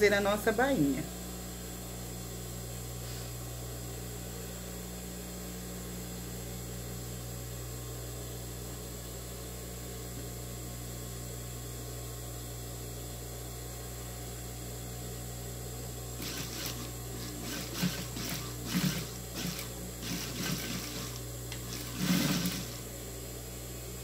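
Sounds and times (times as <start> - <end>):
sewing machine stitching clicks: 16.2 - 22.8
sewing machine humming: 16.2 - 22.9.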